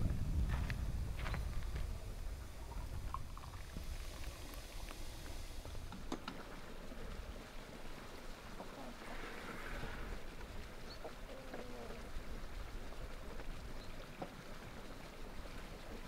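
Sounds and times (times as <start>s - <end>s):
wind rumble on microphone: 0.0s - 5.9s.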